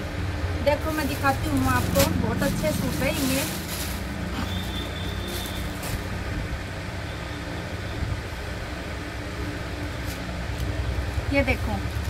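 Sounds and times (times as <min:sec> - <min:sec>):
low mechanical hum: 0:00.0 - 0:12.0
cloth rustling: 0:00.8 - 0:06.4.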